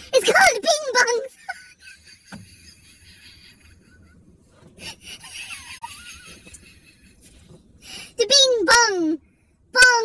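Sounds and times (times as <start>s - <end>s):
breathless wheezy laughter: 4.8s - 7.4s.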